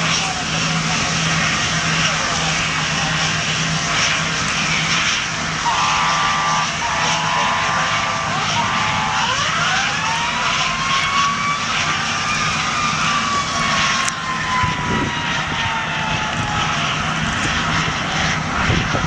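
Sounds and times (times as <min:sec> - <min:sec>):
boat engine drone: 0:00.0 - 0:19.0
rushing wind and water: 0:07.5 - 0:19.0.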